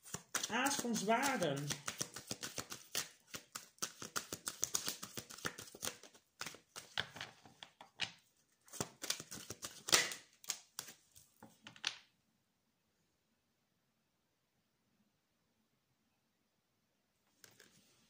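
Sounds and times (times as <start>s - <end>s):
cards being shuffled: 0.0s - 7.7s, 8.7s - 11.0s, 17.4s - 17.9s.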